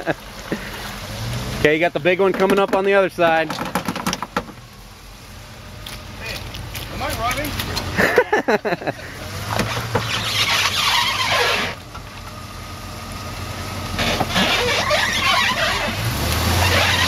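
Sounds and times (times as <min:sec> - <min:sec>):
engine running under load: 0:00.0 - 0:17.0
truck squealing: 0:07.6 - 0:12.3, 0:13.6 - 0:17.0.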